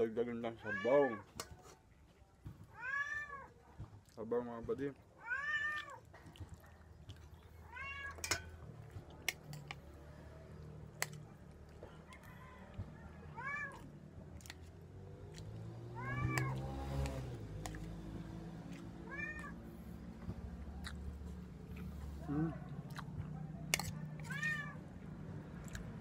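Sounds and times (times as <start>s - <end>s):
cat meowing: 0.6s - 1.3s, 2.7s - 3.6s, 5.2s - 6.1s, 7.6s - 8.2s, 13.3s - 13.9s, 15.9s - 16.7s, 18.8s - 19.7s, 24.2s - 24.8s
metal utensils clinking on dishes: 8.1s - 8.6s.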